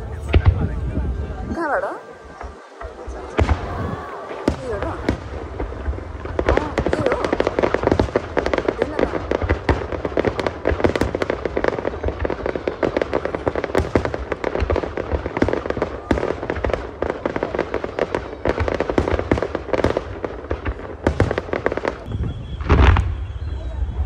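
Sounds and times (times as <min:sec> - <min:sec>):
fireworks bangs and crackling: 0:00.0 - 0:24.0.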